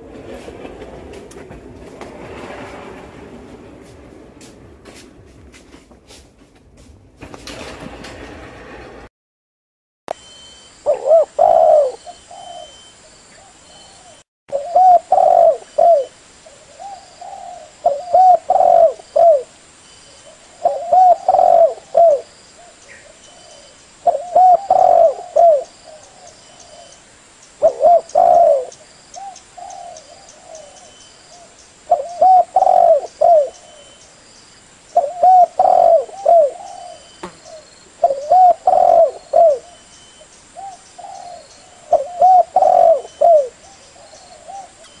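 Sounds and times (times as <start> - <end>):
dove cooing: 10.9 - 19.5, 20.5 - 27.0, 27.6 - 33.9, 35.0 - 39.8, 40.6 - 45.0.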